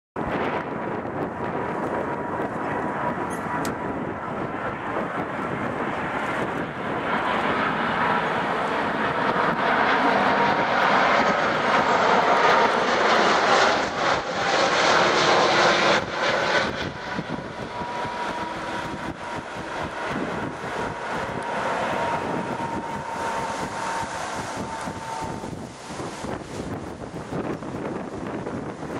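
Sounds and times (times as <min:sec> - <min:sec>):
jet airliner engines roaring: 0:00.2 - 0:28.9
thin steady whine: 0:07.3 - 0:28.7.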